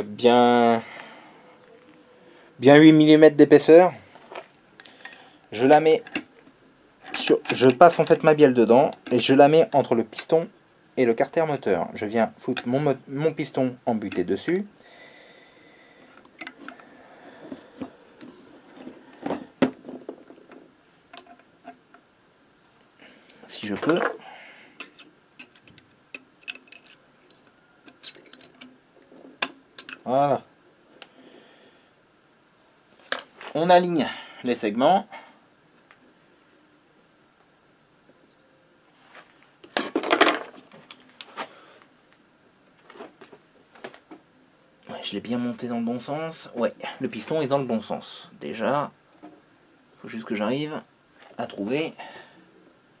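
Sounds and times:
metal parts clicking and scraping: 4.8 - 6.3, 7.0 - 9.3, 16.1 - 16.9, 18.2 - 21.9, 24.8 - 30.1
objects knocking on wooden workbench: 19.2 - 20.4.

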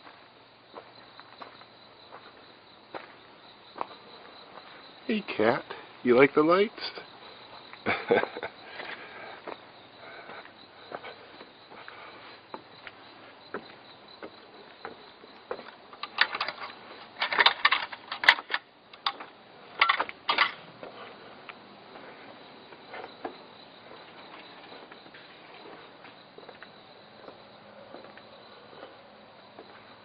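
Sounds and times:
crickets chirping: 0.0 - 30.0
handling clicks and rattles: 15.6 - 20.6.

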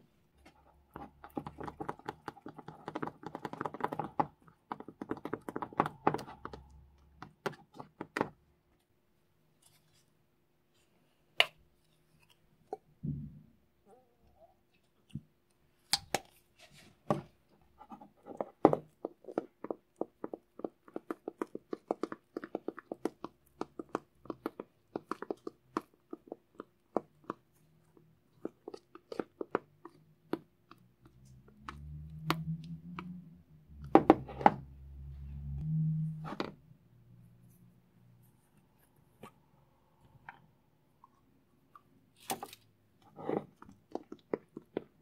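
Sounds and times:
spatula stirring slime in bowl: 0.0 - 13.2, 14.8 - 35.6, 37.4 - 45.0.

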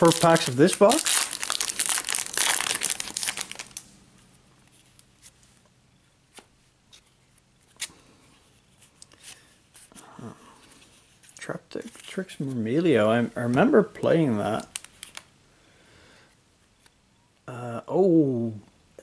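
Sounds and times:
foil wrapper tearing and crinkling: 0.0 - 3.8.

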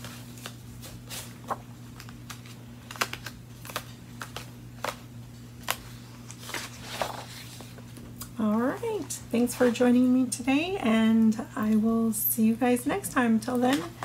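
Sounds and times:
paper pages turning: 0.0 - 8.2.

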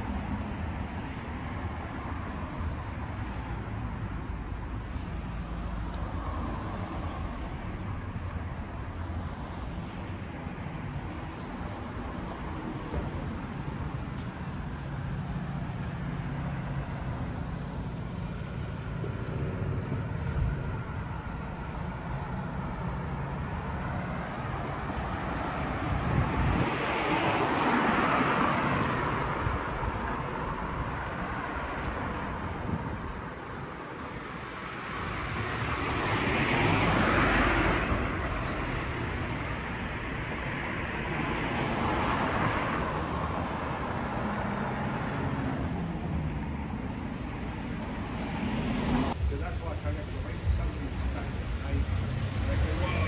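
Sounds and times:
low engine hum: 0.0 - 33.8
cars driving past: 0.0 - 53.0.

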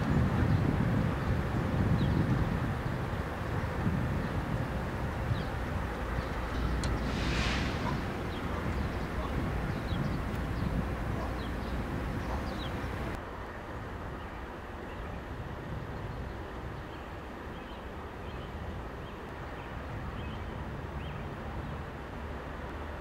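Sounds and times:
diesel locomotives rumbling: 0.0 - 13.2
small birds chirping: 5.3 - 13.2.

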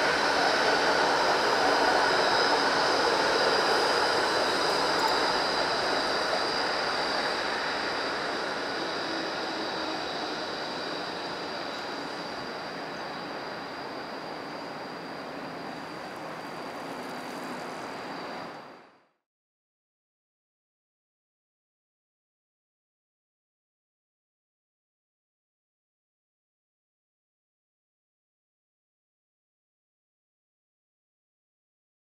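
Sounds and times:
high-pitched whine: 0.0 - 19.1
tram running on rails: 0.0 - 19.1.

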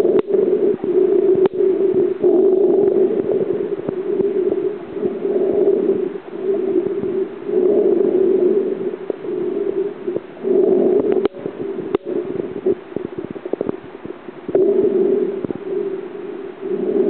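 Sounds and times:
low underwater hum: 0.0 - 17.0
small pops and crackles: 0.1 - 0.4, 1.4 - 1.6, 11.0 - 14.7.

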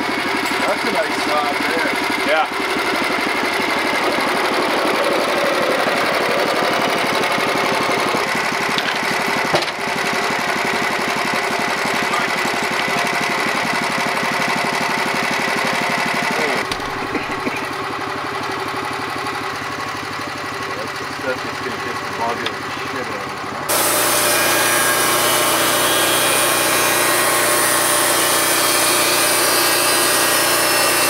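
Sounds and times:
gasoline engine running: 0.0 - 24.5.

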